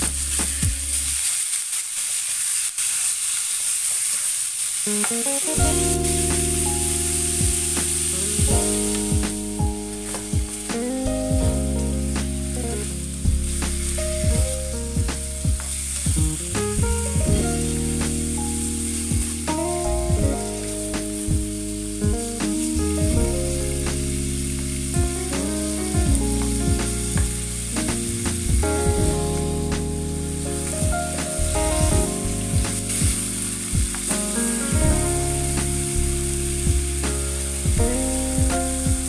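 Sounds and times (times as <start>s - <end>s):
meat sizzling in a frying pan: 0.0s - 10.9s, 11.6s - 16.5s, 17.4s - 22.8s, 23.5s - 28.5s, 32.2s - 34.6s, 35.2s - 39.0s
soft background music: 4.9s - 39.0s.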